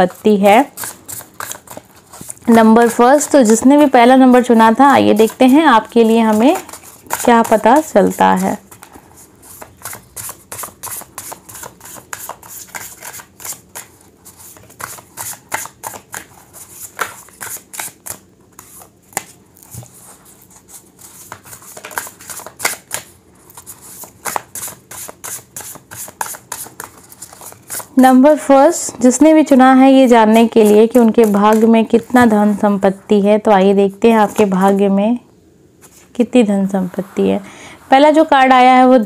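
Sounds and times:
cards being shuffled: 0.8 - 3.1, 5.1 - 28.0.

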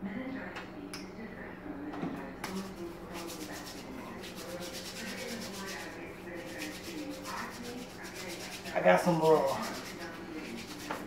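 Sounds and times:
hands rubbing together: 2.5 - 11.0.

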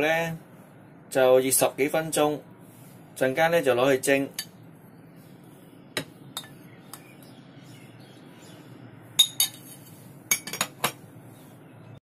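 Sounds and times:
spoon clinking on porcelain bowls: 6.4 - 6.6, 9.2 - 11.0.

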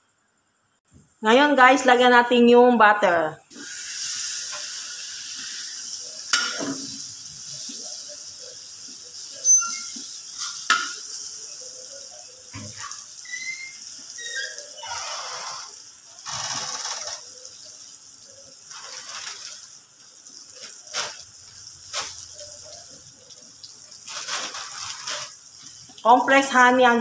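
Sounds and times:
butter sizzling in a wok: 3.5 - 26.6.

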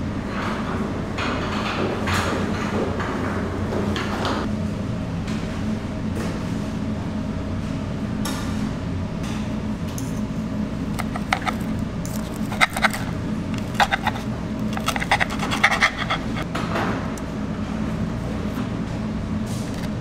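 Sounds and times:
low background hum: 0.0 - 20.0
knife and fork scraping plate: 11.0 - 16.5.

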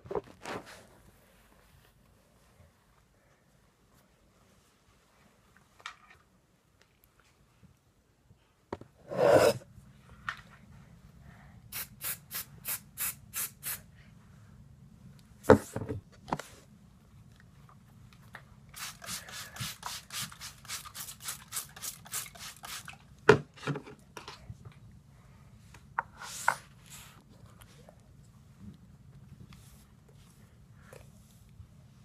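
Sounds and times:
faint low hum: 13.8 - 18.8, 22.9 - 32.0.

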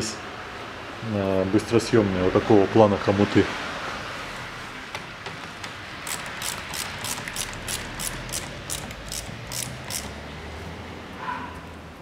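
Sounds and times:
socket ratchet clicking: 5.5 - 10.3.

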